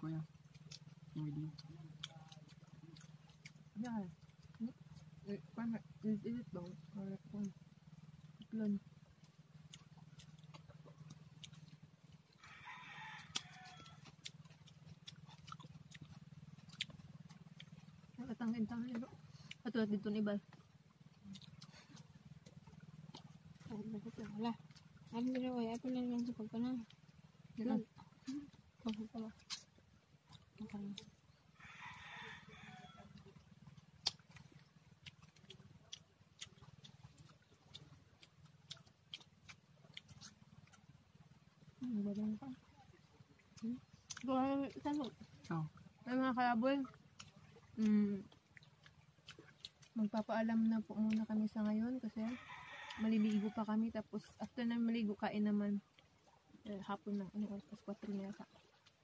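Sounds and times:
steady low hum: 0.0s - 59.0s
people eating with mouth smacks: 0.1s - 31.8s, 33.0s - 55.1s, 55.8s - 59.0s
faint rooster crowing: 12.4s - 14.2s, 31.5s - 33.3s, 52.2s - 53.8s.

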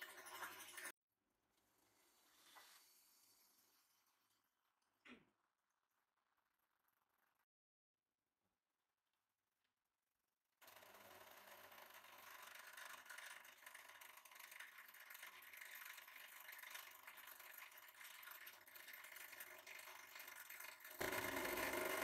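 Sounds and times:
hydraulic pump whirring: 21.0s - 22.0s.

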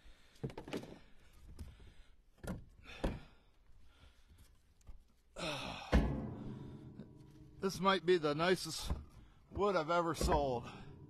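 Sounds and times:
man exhaling heavily: 5.4s - 7.0s.

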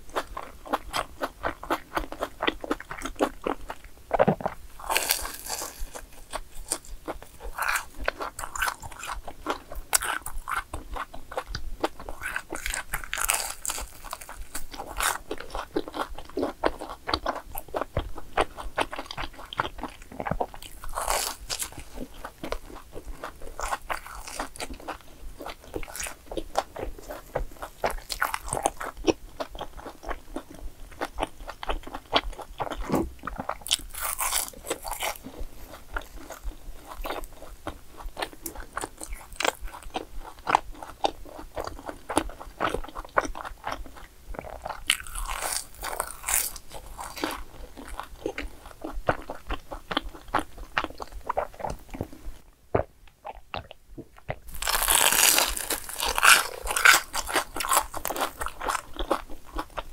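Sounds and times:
crunchy bites and chewing: 0.1s - 52.2s, 52.8s - 59.9s.

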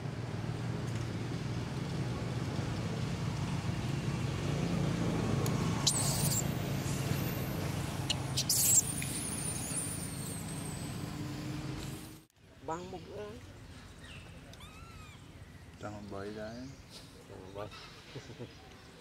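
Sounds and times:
low engine hum: 0.0s - 12.3s
baby monkey squealing: 5.8s - 7.3s, 8.0s - 10.8s, 14.6s - 15.3s.

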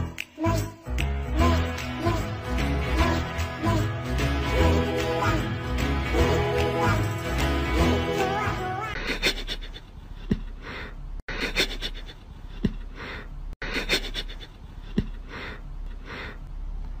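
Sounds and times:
breathy sniffing puffs: 9.0s - 16.5s.

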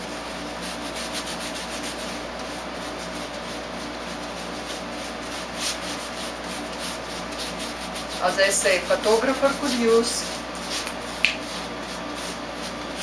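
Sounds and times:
paintbrush scrubbing foam tile: 0.0s - 13.0s.

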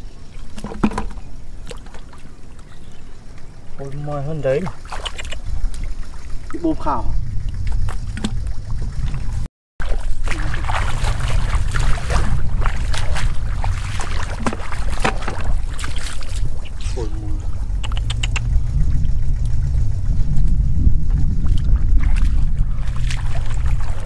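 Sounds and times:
wind rumble on microphone: 0.0s - 24.0s
hands splashing in muddy water: 9.8s - 16.7s, 21.4s - 24.0s.

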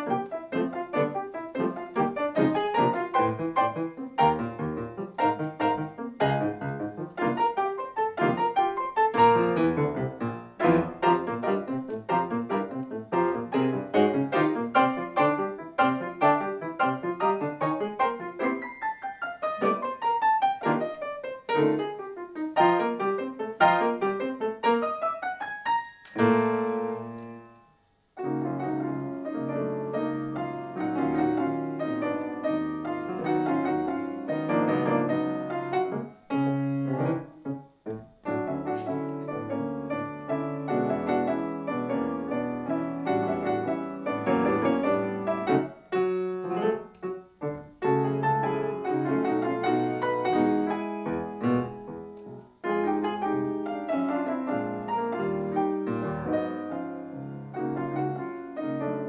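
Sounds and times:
grand piano played four-hands: 0.0s - 59.0s.

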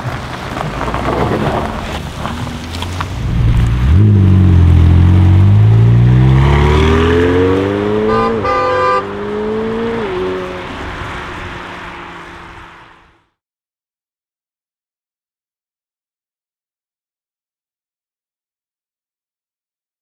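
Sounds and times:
sports car accelerating: 0.1s - 13.3s
horn-like tone: 8.0s - 9.2s.

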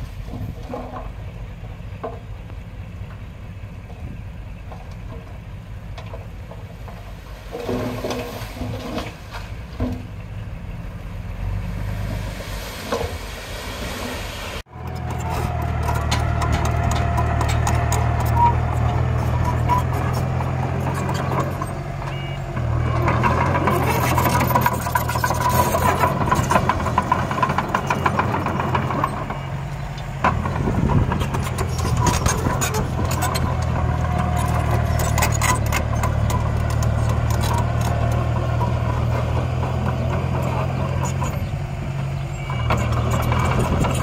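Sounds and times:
diesel engine under load: 0.0s - 44.0s
metallic clanks and rattles: 14.8s - 29.4s, 30.2s - 41.5s.

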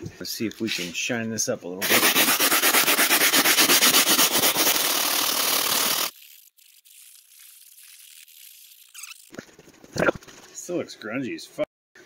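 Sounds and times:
brush scrubbing cloth: 1.8s - 9.6s.

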